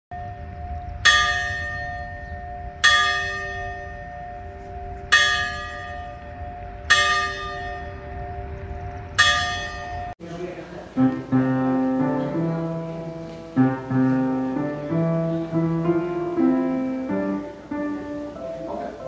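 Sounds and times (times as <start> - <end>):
church bell tolling: 0.1 - 10.2, 10.8 - 19.0.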